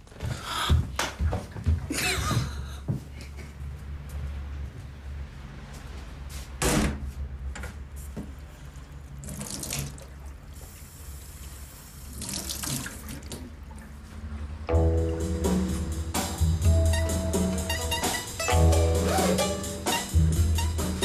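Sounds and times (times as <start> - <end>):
tap water splashing into sink: 12.2 - 13.5
music: 14.7 - 21.0.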